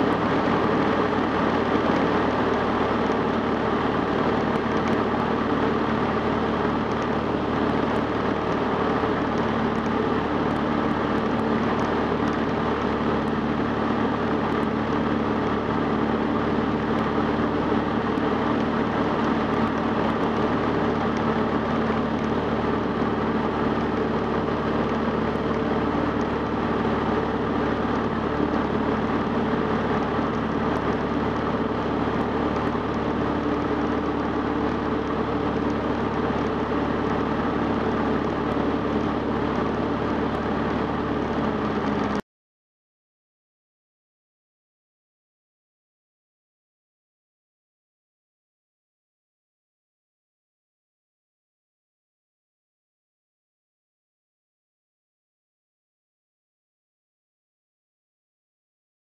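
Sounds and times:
airplane engine and propeller droning: 0:00.0 - 0:42.2.

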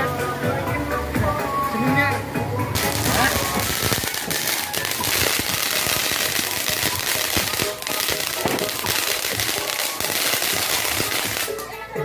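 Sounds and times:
ground firework crackling: 0:02.7 - 0:12.0
firework hissing: 0:02.8 - 0:11.8.

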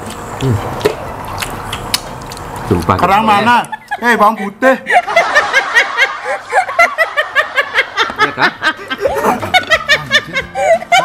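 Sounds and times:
group of people laughing: 0:03.7 - 0:11.0.

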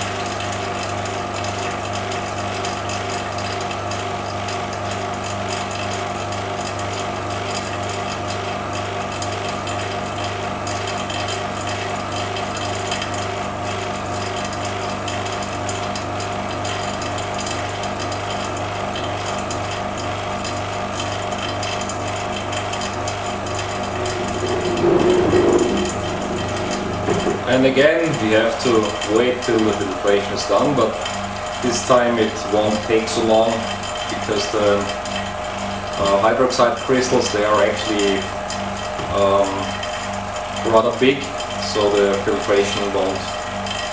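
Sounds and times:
vacuum pump humming: 0:00.0 - 0:43.9.

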